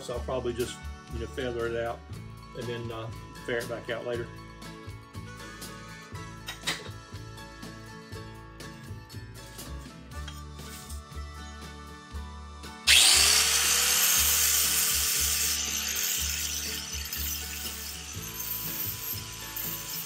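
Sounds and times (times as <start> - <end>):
background music with bass line: 0.0 - 20.0
disc grinder grinding: 12.9 - 20.0.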